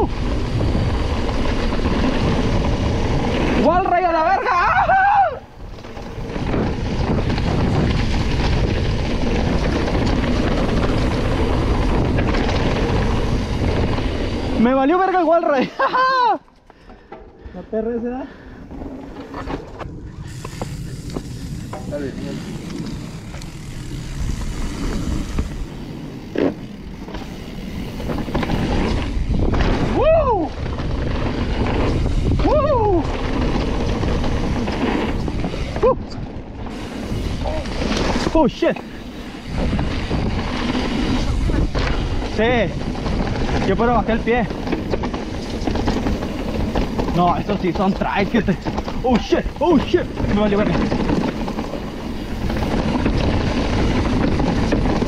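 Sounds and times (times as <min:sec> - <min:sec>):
wind buffeting microphone: 0:00.0 - 0:03.8, 0:04.6 - 0:14.6, 0:19.8 - 0:55.0
bike tyre rumble and rattle: 0:00.0 - 0:55.0
rider shouting: 0:03.7 - 0:05.5, 0:32.4 - 0:33.1.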